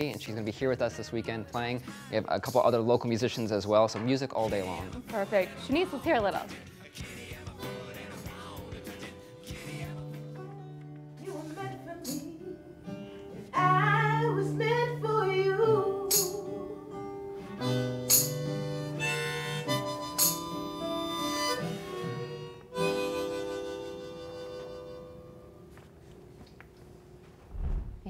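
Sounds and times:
acoustic guitar strumming: 4.6 - 11.0, 16.3 - 25.7
harmonica bending notes: 17.4 - 25.7.

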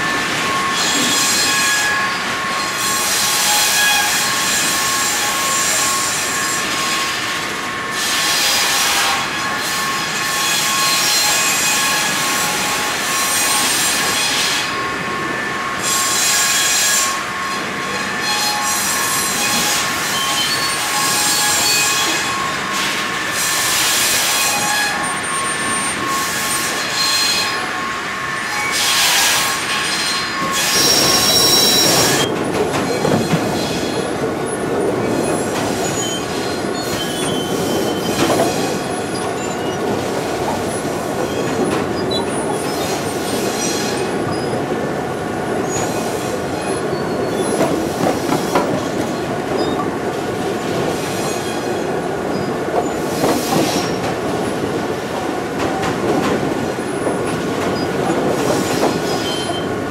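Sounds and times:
metallic screeching of conveyors: 0.2 - 7.2, 15.8 - 32.3, 35.2 - 40.3, 41.2 - 44.6, 57.8 - 59.8.

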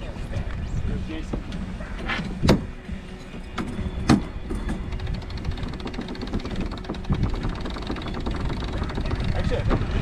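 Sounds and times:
wind: 0.0 - 10.0
water noise: 3.8 - 10.0.

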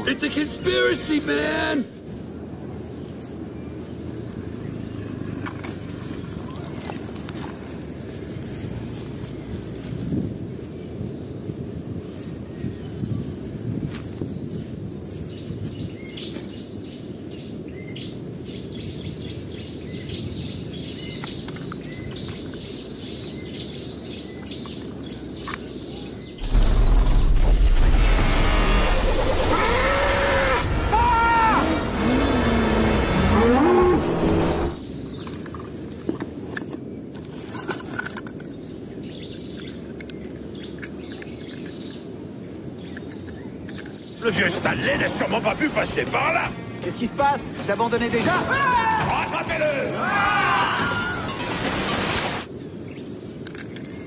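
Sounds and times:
small birds chirping: 0.0 - 27.8, 34.7 - 37.3, 38.3 - 50.4
low outdoor rumble: 25.0 - 36.4.

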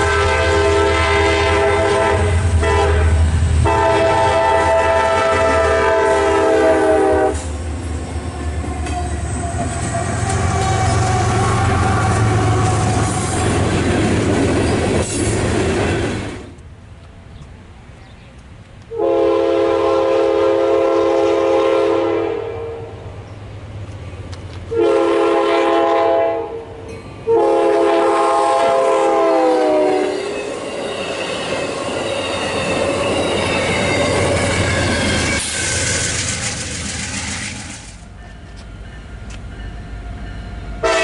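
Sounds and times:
locomotive air horn blasts: 0.0 - 7.5, 18.9 - 23.0, 24.7 - 30.4, 40.8 - 41.0
train rumble: 0.0 - 41.0.

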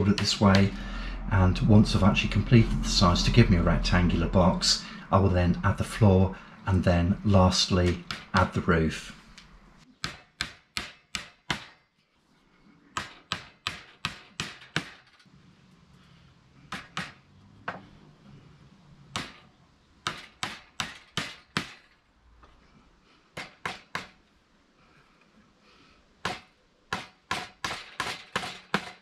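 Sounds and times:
hammer driving nails into wood: 7.8 - 8.6, 10.0 - 11.8, 12.9 - 15.2, 16.7 - 17.8, 19.1 - 22.0, 23.4 - 24.2, 26.2 - 29.0.

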